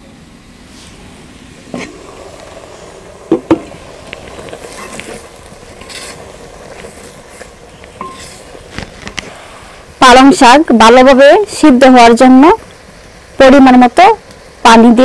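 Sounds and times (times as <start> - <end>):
spinach sizzling in pot: 0.6 - 15.0
spatula scraping clay pot: 4.3 - 9.4.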